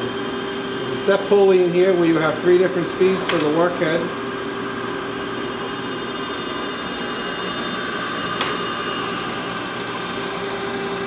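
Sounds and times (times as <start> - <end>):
grinder motor hum and whine: 0.0 - 11.0
sharp click: 3.3 - 3.6.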